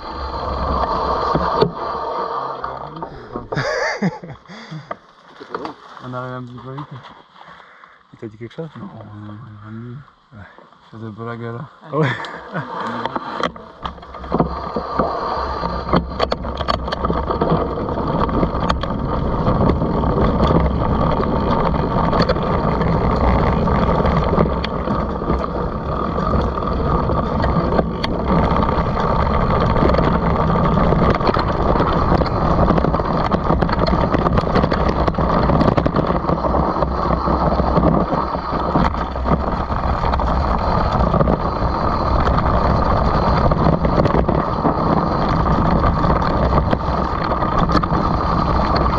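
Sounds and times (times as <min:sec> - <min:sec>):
tyres rolling on dirt: 0:00.0 - 0:48.9
bike clattering over bumps: 0:13.2 - 0:48.9
wind buffeting microphone: 0:15.6 - 0:48.9.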